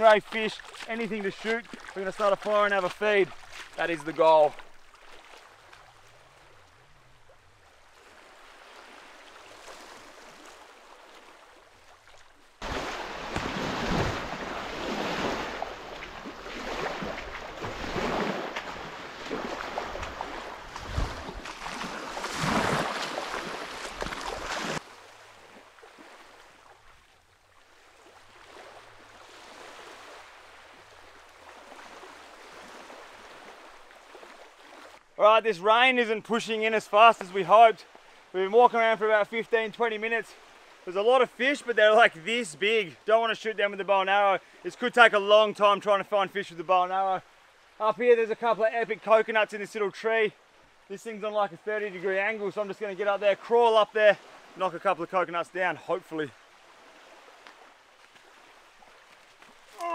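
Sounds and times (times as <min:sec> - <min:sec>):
small waves washing on shore: 0:00.0 - 0:59.9
wind: 0:00.0 - 0:59.9
wind rushing on microphone: 0:20.7 - 0:21.4.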